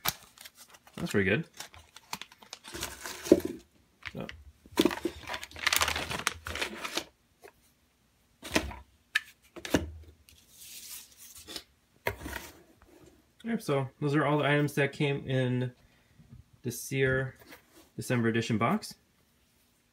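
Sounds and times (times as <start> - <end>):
plastic bags crinkling: 0.0 - 7.1
shredded paper rustling: 4.8 - 7.1.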